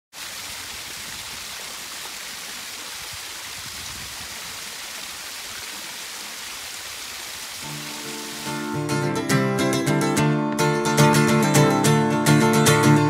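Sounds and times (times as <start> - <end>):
brook water rushing over stones: 0.1 - 9.2.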